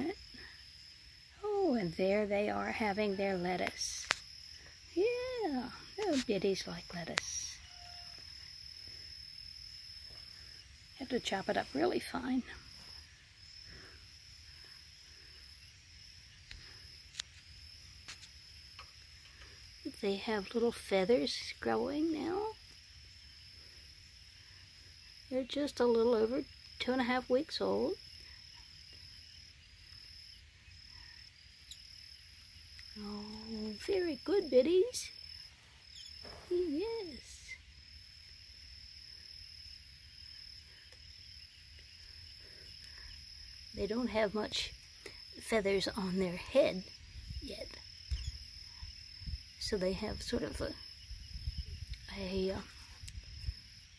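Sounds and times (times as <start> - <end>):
high-pitched insect trill: 0.0 - 53.9.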